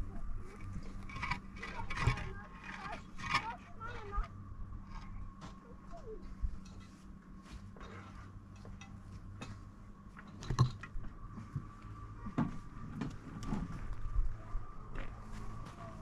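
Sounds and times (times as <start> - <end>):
steady low hum: 0.0 - 16.0
concrete blocks scraping and knocking: 0.5 - 5.7, 10.2 - 11.7.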